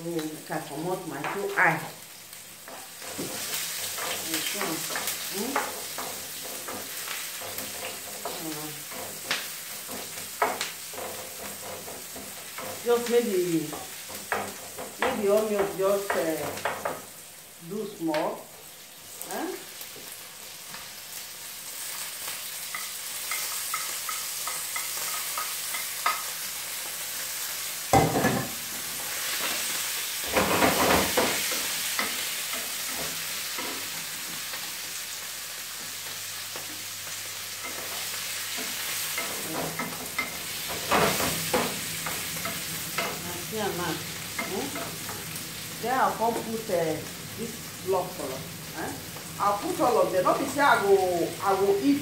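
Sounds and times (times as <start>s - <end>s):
carrots sizzling in oil: 0.0s - 52.0s
spoon scraping and knocking pan: 2.6s - 17.2s, 22.3s - 46.6s.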